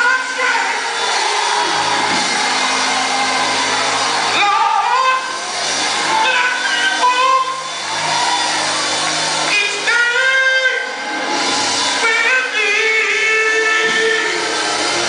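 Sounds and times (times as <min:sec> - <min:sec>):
man singing gospel: 0:12.0 - 0:14.6.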